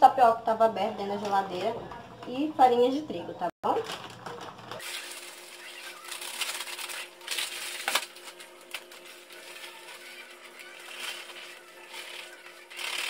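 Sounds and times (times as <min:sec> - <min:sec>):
plastic bag crinkling: 0:03.7 - 0:13.0.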